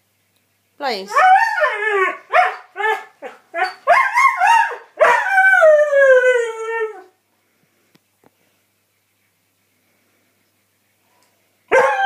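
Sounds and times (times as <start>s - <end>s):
dog howling: 1.1s - 7.1s, 11.7s - 12.0s.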